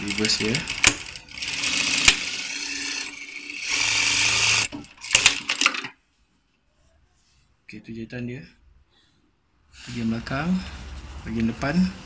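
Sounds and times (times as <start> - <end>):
sewing machine stitching: 0.0 - 5.9.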